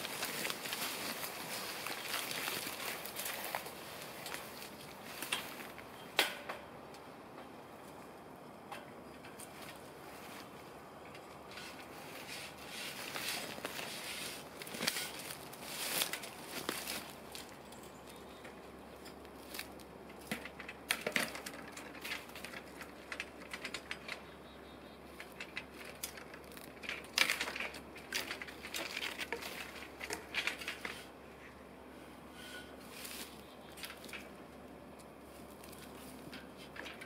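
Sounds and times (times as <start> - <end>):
dry leaves crackling and crunching: 0.0 - 5.8, 11.5 - 18.3, 19.2 - 20.4, 25.0 - 31.1, 32.8 - 34.4, 35.2 - 37.0
metal ladder clicks and knocks: 5.1 - 6.7, 14.6 - 24.3, 25.1 - 31.1, 35.6 - 37.0.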